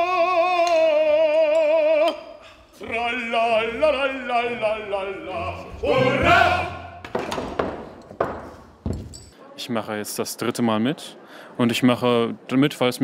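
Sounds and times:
opera chorus singing: 0:02.8 - 0:07.0.

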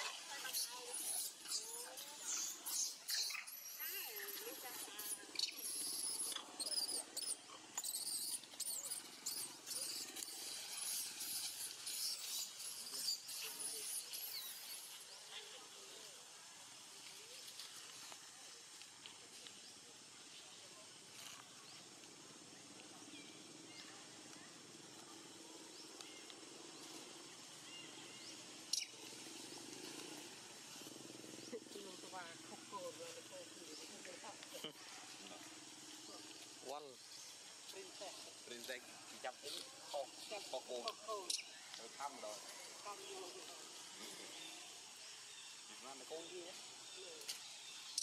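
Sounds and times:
animal squeaks and chirps: 0:00.4 - 0:14.9, 0:28.7 - 0:29.0
high bird chirps: 0:00.6 - 0:04.3.

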